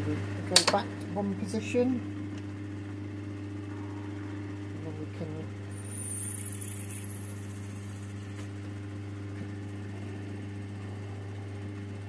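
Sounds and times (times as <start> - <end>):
cutting tool squealing: 5.8 - 8.6.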